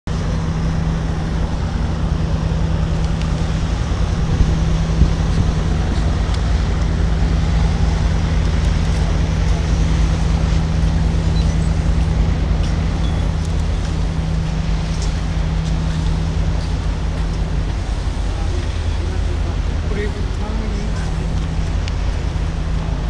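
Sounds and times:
low machinery hum: 0.1 - 23.0
wind rumble on microphone: 0.1 - 23.0.

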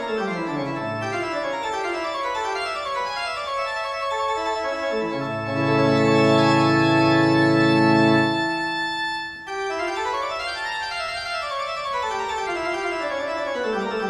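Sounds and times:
organ music: 0.0 - 14.0
deep organ bass notes: 5.0 - 9.0.

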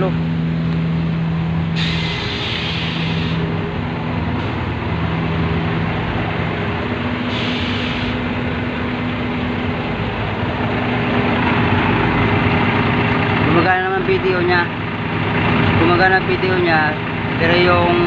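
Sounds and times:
truck engine idling: 0.0 - 18.0
brief hiss: 1.8 - 3.4, 7.3 - 8.2.

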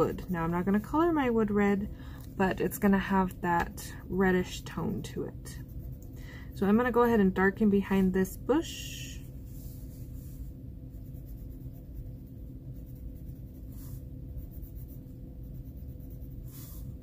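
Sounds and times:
colored pencil scratching paper: 0.0 - 1.5, 4.2 - 6.0, 9.1 - 17.0
low hum: 0.0 - 17.0.

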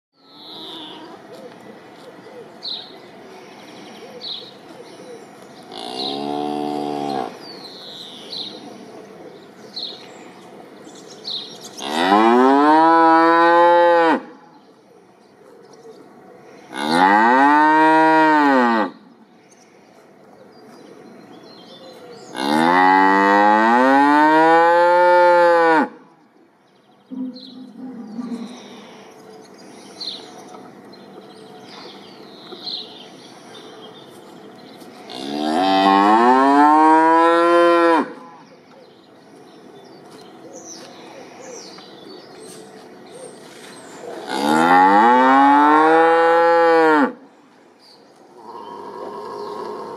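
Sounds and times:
cow mooing: 44.3 - 47.2.

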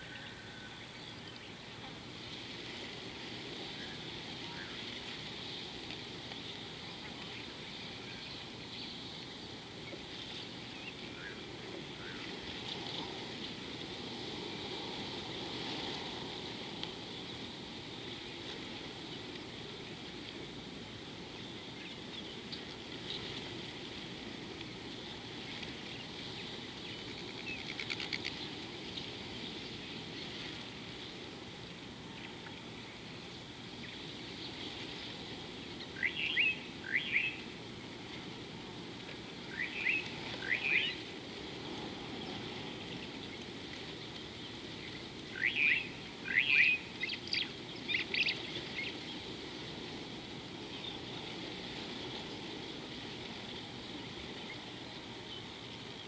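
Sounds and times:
wild birds calling: 0.0 - 2.0, 6.1 - 13.7, 35.5 - 37.6, 39.2 - 49.5
steady background hiss: 0.0 - 56.0.

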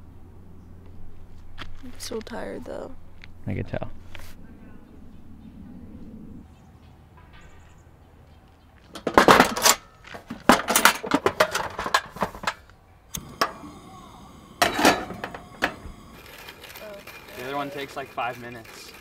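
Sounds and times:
kettle set down on metal grate: 9.0 - 9.8, 10.4 - 12.6, 14.6 - 16.0
metal cookware clattering: 9.0 - 12.6, 14.6 - 15.8
stove clicks: 10.7 - 13.8, 14.4 - 16.6
camp stove burner hissing: 11.5 - 19.0.

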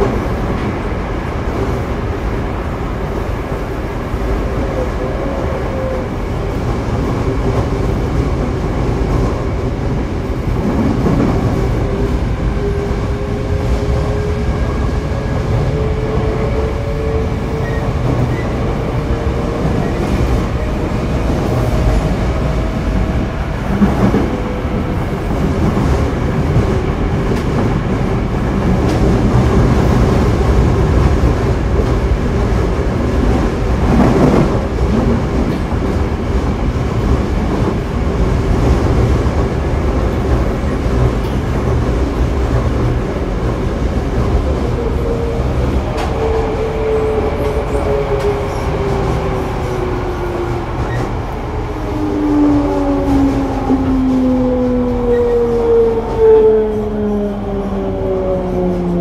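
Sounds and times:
subway train wheels and motors rumbling: 0.0 - 59.0.

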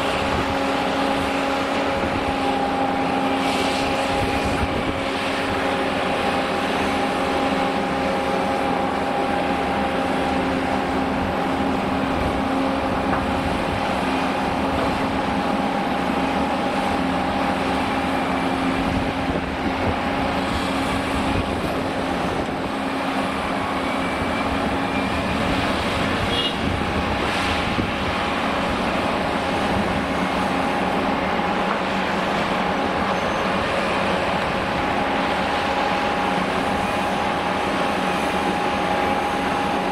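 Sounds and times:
diesel engine and hydraulic whine: 0.0 - 39.9.

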